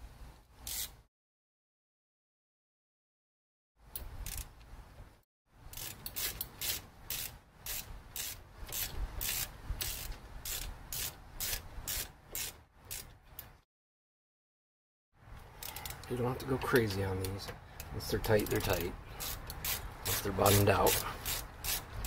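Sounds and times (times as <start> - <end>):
ratchet wrench clicking: 0.6 - 0.9, 4.0 - 4.5, 5.7 - 13.5, 15.6 - 16.1, 17.8 - 20.2, 20.9 - 21.9.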